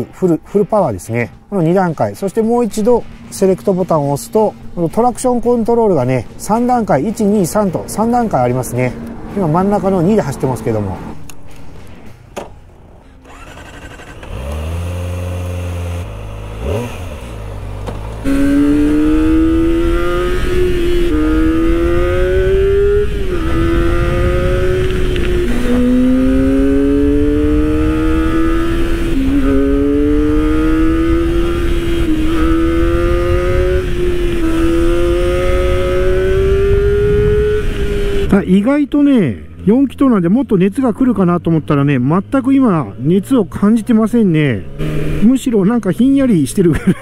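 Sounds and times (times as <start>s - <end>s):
motorcycle engine accelerating through gears: 13.2s - 38.3s, 44.6s - 45.5s.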